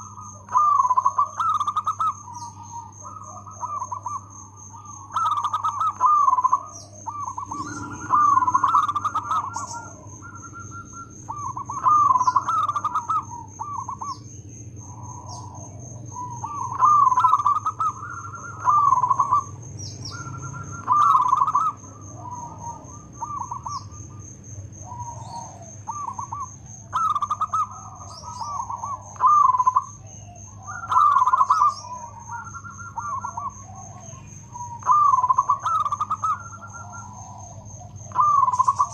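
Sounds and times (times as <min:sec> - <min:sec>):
dove cooing: 0:00.0 - 0:38.9
thin high tone: 0:07.4 - 0:12.9.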